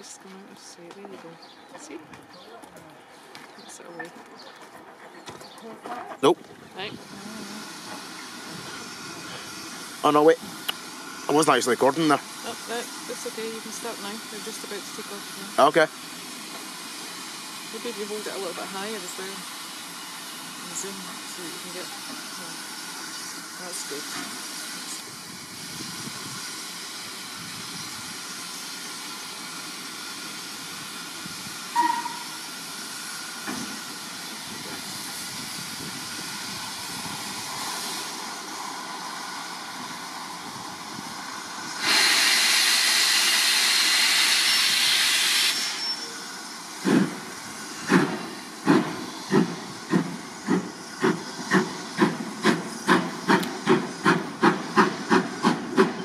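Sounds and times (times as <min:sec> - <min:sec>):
loud rush of steam: 0:06.2 - 0:56.0
steam hissing: 0:06.7 - 0:56.0
locomotive exhaust chuffs: 0:07.0 - 0:56.0
steam locomotive whistle: 0:31.7 - 0:32.4, 0:41.8 - 0:46.3.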